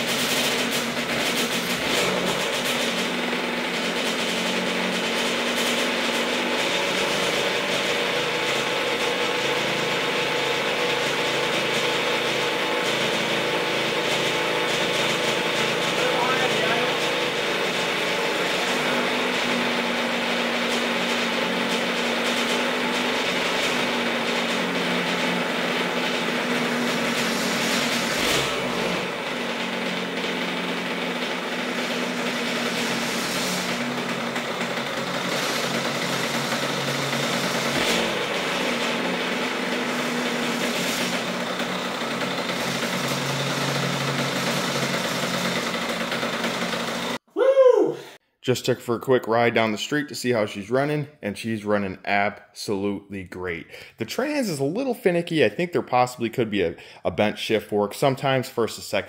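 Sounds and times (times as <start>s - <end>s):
two-stroke engine idling: 0.0s - 47.2s.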